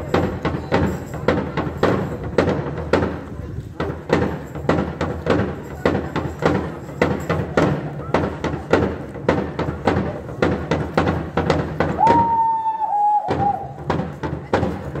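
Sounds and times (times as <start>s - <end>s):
large cowbells clanging: 0.0s - 12.0s.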